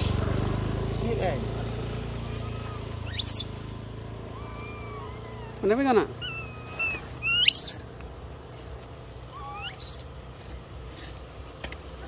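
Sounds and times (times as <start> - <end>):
high-pitched animal calls: 2.1 - 3.6, 4.2 - 8.0, 9.3 - 10.1.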